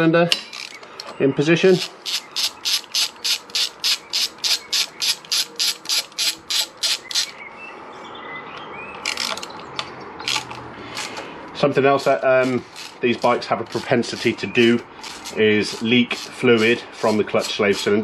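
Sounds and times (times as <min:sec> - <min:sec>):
ratchet wrench clicking: 0:00.4 - 0:00.8, 0:01.8 - 0:07.4, 0:09.0 - 0:09.5, 0:10.2 - 0:11.2, 0:12.0 - 0:18.0.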